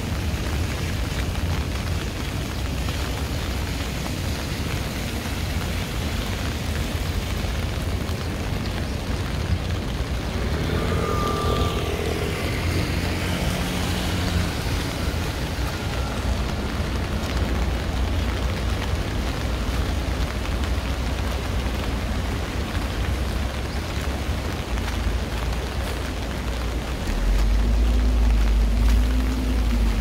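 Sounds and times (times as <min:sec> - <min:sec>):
heavy rain on street: 0:00.0 - 0:30.0
vehicle engine passing: 0:09.9 - 0:17.4.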